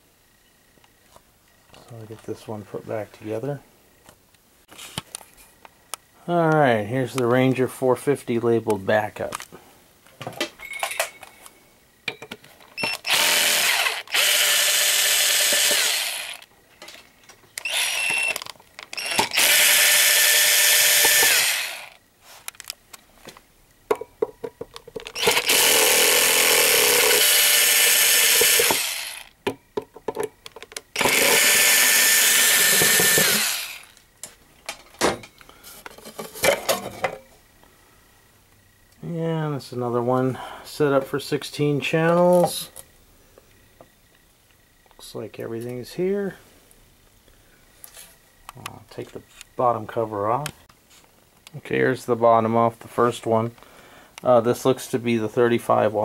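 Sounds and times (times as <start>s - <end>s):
cordless drill running: 12.8s - 16.5s, 17.6s - 22.0s, 25.2s - 29.3s, 31.0s - 34.0s
screws and cover clattering: 15.3s - 21.6s, 30.0s - 33.9s.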